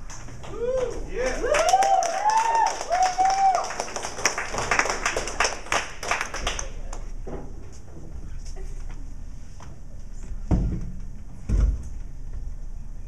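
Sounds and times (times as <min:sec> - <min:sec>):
audience clapping: 0:00.0 - 0:07.1
high whoops: 0:00.4 - 0:04.0.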